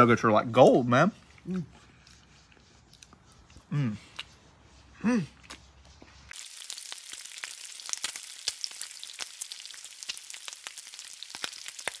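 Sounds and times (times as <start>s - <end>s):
fat crackling and popping: 6.3s - 12.0s
food sizzling on a griddle: 6.3s - 12.0s.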